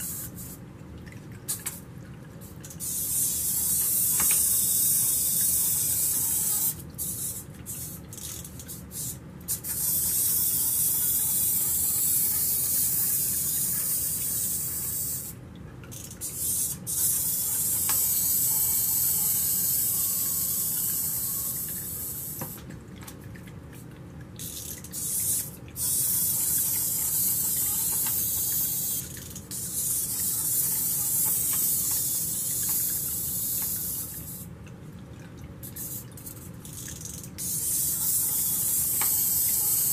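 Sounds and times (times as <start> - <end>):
water trickling into pebble bowl: 0.0 - 39.9.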